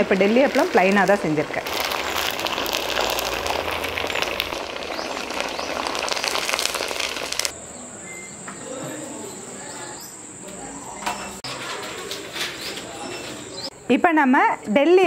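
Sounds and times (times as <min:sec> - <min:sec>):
food frying in hot oil: 0:00.0 - 0:07.6
faint chirps: 0:07.6 - 0:11.4.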